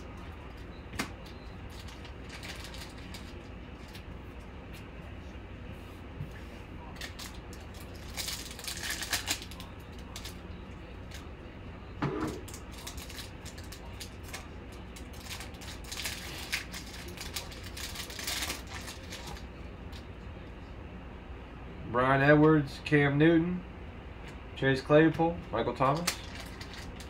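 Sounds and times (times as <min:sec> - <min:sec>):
foil wrapper tearing and crinkling: 0:01.7 - 0:04.0, 0:07.0 - 0:10.4, 0:12.4 - 0:19.4, 0:26.0 - 0:27.0.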